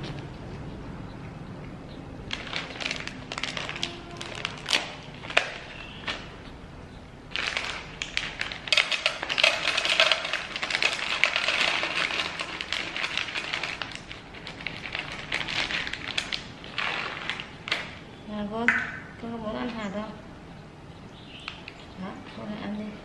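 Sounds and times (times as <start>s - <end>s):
plastic bag crinkling: 2.3s - 6.3s, 7.3s - 18.1s
seeds rattling into plastic bowl: 7.4s - 17.9s.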